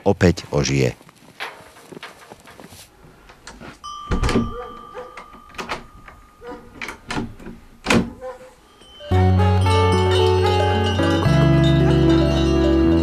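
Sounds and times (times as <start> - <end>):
key and latch clicking: 3.4 - 8.2
thin steady high tone: 8.6 - 12.8.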